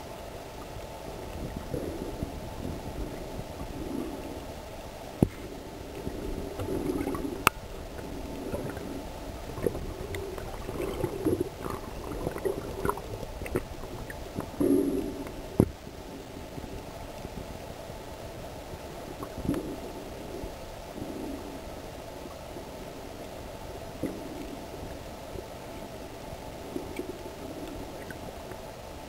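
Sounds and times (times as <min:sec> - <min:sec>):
underwater gurgling and rumbling: 0:00.0 - 0:29.0.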